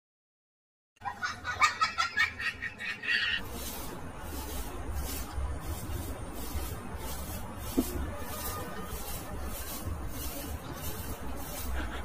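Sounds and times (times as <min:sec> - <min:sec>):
broom swishing: 0:03.4 - 0:12.0.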